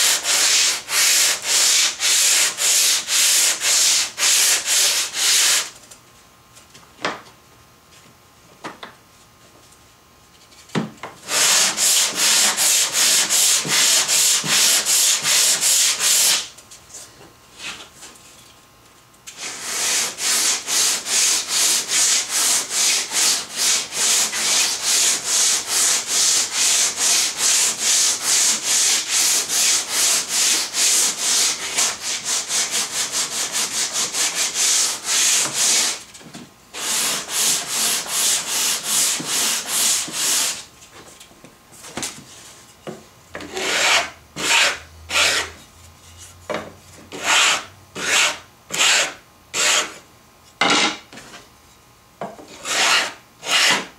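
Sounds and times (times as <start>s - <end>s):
sanding block on wooden board: 0.0s - 5.7s, 11.3s - 16.5s, 19.4s - 36.0s, 36.8s - 40.6s, 43.5s - 45.6s, 47.1s - 50.0s, 52.5s - 53.9s.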